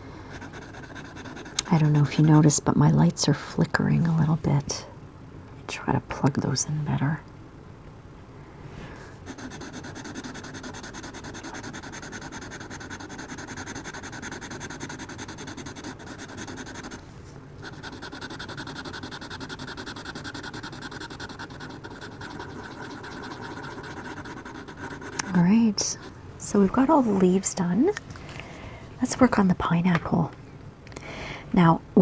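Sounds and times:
marker scratching on paper: 0:00.4 - 0:02.4, 0:09.3 - 0:17.0, 0:17.6 - 0:26.1.

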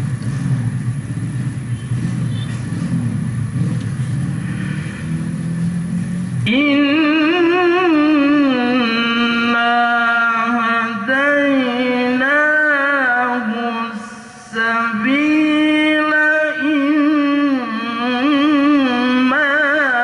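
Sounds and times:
man reciting melodically into microphone: 0:06.5 - 0:20.0.

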